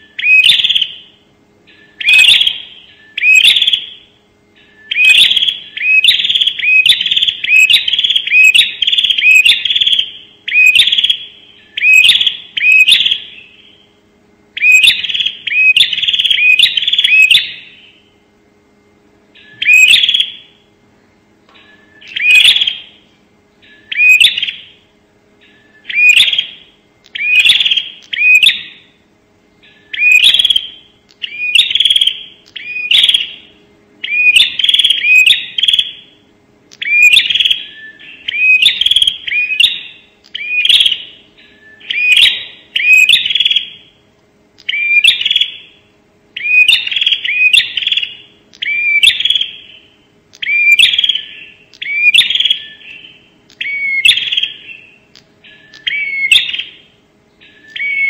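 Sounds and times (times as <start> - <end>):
bird chirping sharply: 0.0 - 13.9, 14.6 - 18.1, 19.4 - 20.6, 21.6 - 23.0, 23.6 - 24.8, 25.4 - 29.0, 29.6 - 36.1.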